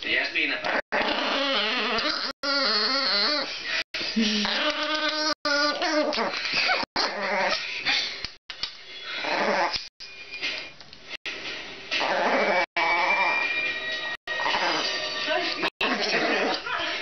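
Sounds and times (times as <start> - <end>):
puppy growling: 0.6 - 3.6, 4.2 - 7.8, 9.2 - 9.9, 12.0 - 13.5, 14.3 - 15.0, 15.7 - 16.6.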